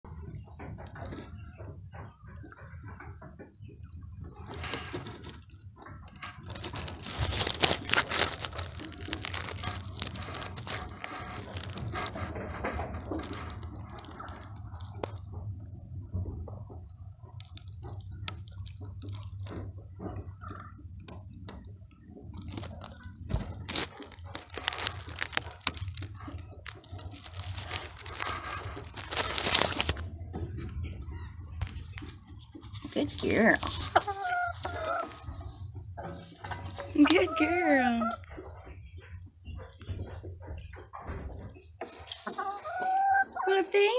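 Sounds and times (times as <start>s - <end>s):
straw rustling and crackling: 4.3s - 40.8s, 41.5s - 43.9s
hen rustling straw bedding: 6.5s - 15.1s, 22.6s - 30.0s.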